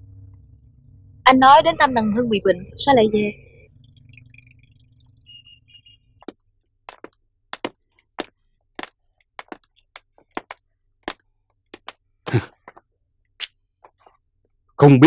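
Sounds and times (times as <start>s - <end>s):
footsteps on tiled floor: 6.2s - 12.8s.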